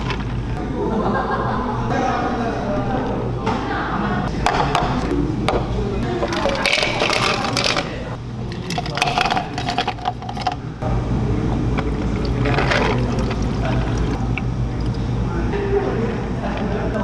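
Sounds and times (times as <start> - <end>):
ice cubes clattering into cups: 6.2 - 7.9, 8.6 - 10.6, 12.2 - 14.2
liquid pouring over ice: 8.6 - 10.6, 12.1 - 15.1.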